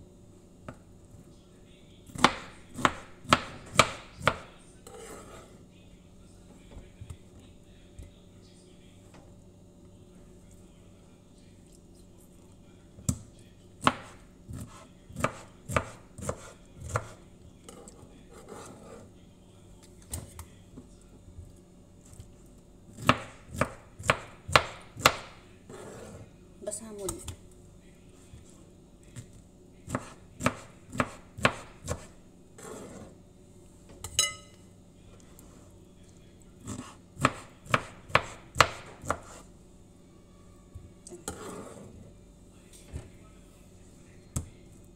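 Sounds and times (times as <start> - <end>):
knife chopping pineapple: 2.1 - 5.3, 13.1 - 17.2, 22.9 - 25.9, 29.8 - 33.0, 36.6 - 39.4.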